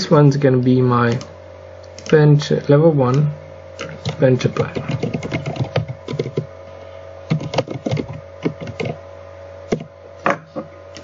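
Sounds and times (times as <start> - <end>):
low electrical hum: 0.0 - 11.0
computer keyboard typing: 3.8 - 6.5, 7.3 - 9.0.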